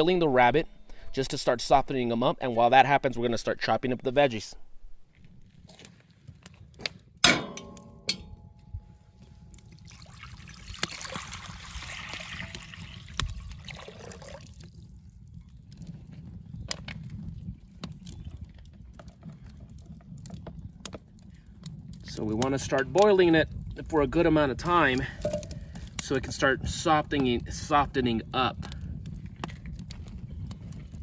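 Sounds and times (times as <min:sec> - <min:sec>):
metallic clank: 0:07.2 - 0:08.8
water pouring into pot: 0:09.6 - 0:14.9.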